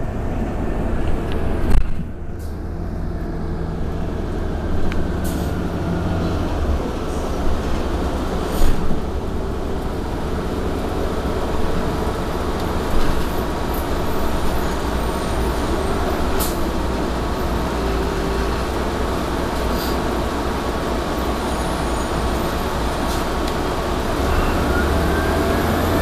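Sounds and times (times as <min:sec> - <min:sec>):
bus engine and road rumble: 0:00.0 - 0:26.0
air brake hiss: 0:08.5 - 0:08.9, 0:19.7 - 0:20.0.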